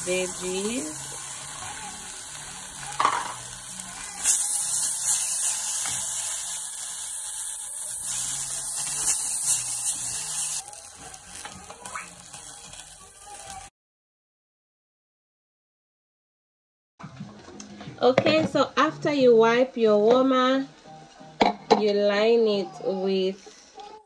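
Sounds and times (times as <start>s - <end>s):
vegetables sizzling in a pot: 0.0s - 13.7s.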